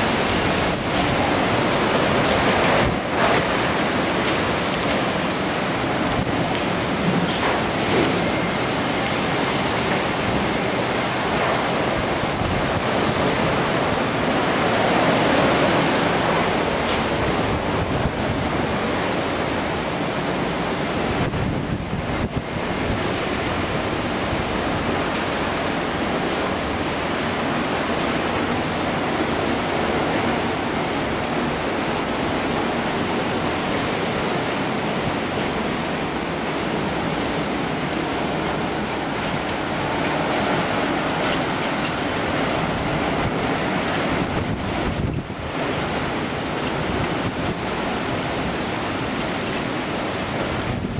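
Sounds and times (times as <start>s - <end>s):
heavy rain: 0.0s - 50.9s
hurricane wind: 0.0s - 50.9s
wind striking microphone: 20.8s - 25.0s, 40.4s - 46.0s.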